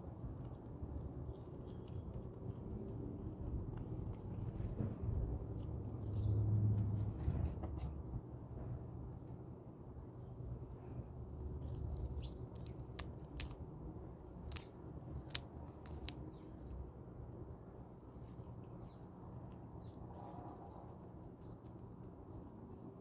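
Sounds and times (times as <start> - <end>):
chipmunk nibbling: 0.0 - 7.0, 10.3 - 23.0
low outdoor background: 0.0 - 23.0
peanut shells cracking: 11.6 - 13.7, 14.3 - 16.7.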